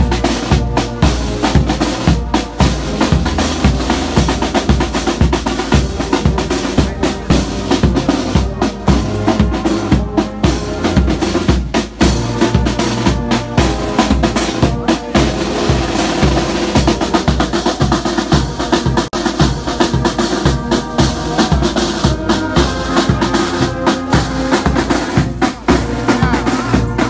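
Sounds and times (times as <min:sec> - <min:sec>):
brass band playing a hymn: 0:00.0 - 0:27.0.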